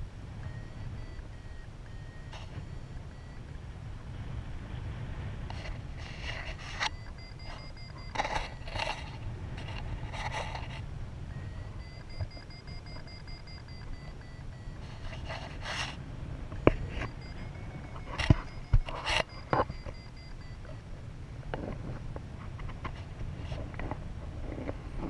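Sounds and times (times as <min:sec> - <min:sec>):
high electronic tone: 0:00.4 - 0:03.6, 0:06.4 - 0:09.0, 0:11.3 - 0:15.6, 0:16.6 - 0:20.9
wind rushing over microphone: 0:02.3 - 0:12.6.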